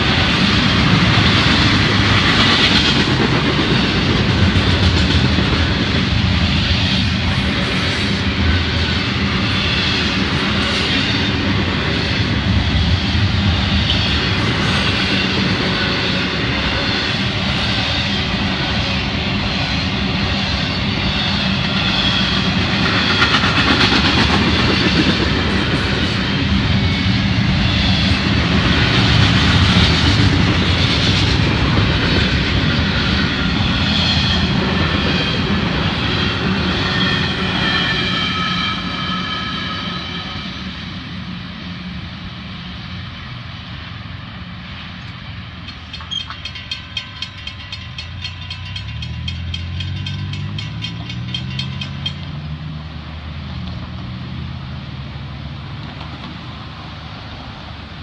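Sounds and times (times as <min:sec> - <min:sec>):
train wheels rumbling on rails: 0:00.0 - 0:58.0
high wheel squealing: 0:31.9 - 0:41.0, 0:45.6 - 0:52.8.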